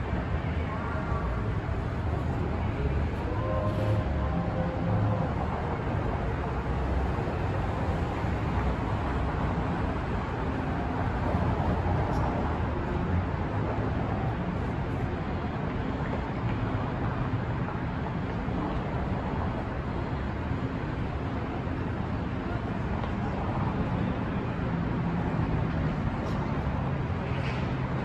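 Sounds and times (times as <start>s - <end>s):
voices: 0.0s - 6.8s
traffic rumble: 0.0s - 28.0s.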